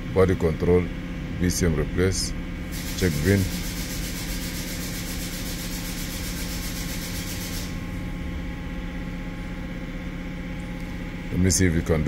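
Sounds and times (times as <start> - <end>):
machinery humming: 0.0 - 12.0
high hiss: 2.7 - 4.3.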